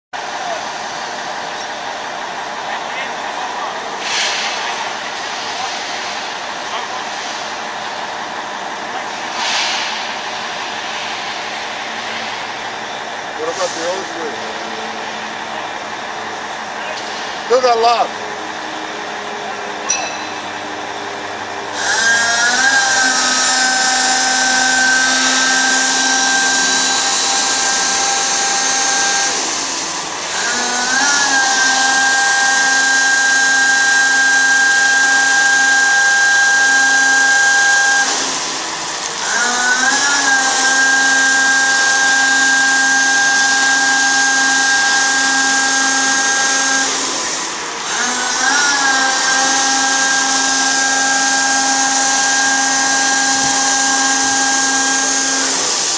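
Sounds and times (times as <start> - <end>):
spray pump whining: 2.7 - 55.9
water jetting hiss: 4.0 - 6.2, 9.2 - 10.1.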